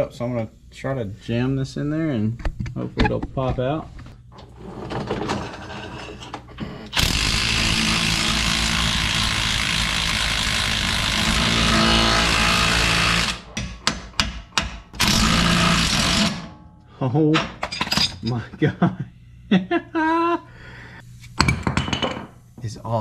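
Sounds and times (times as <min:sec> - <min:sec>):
impact wrench hammering: 0:07.0 - 0:16.6.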